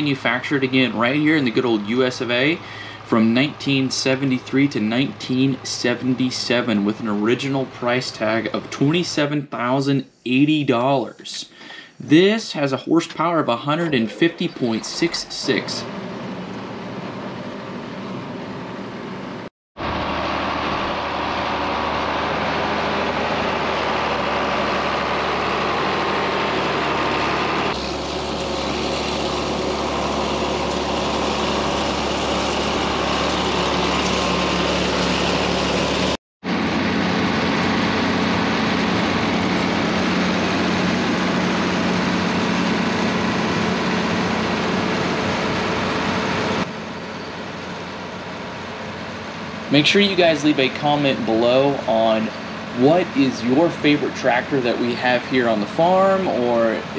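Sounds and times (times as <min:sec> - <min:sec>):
tractor diesel engine running: 0:00.0 - 0:09.8, 0:11.5 - 0:56.9.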